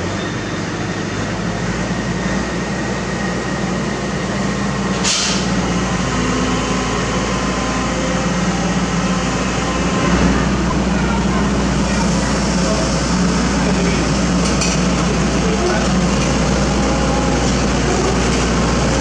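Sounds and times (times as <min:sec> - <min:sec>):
diesel engine under load: 0:00.0 - 0:19.0
short sharp hiss: 0:05.0 - 0:05.5.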